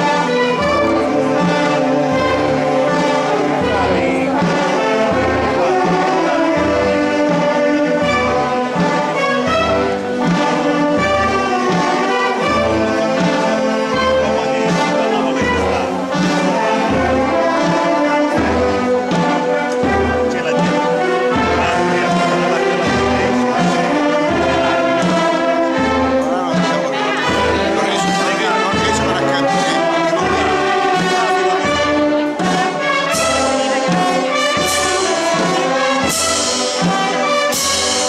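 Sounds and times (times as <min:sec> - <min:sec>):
wind band playing slow music: 0:00.0 - 0:38.0.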